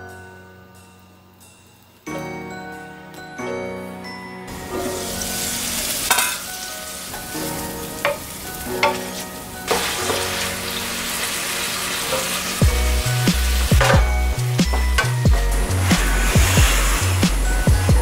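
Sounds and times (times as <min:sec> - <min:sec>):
food sizzling in a frying pan: 0:04.5 - 0:18.0
wooden spatula scraping pan: 0:11.4 - 0:17.6
music with deep beat: 0:12.6 - 0:18.0.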